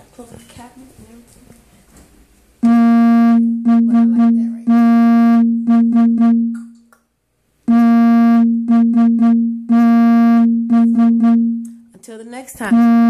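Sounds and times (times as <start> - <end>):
single note repeated in rhythm: 2.6 - 6.8, 7.7 - 11.8, 12.7 - 13.0.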